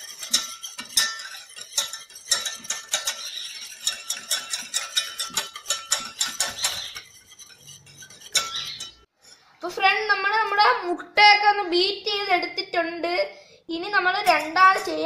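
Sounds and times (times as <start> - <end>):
whisk clinking against metal bowl: 0.0 - 9.1, 14.2 - 15.0.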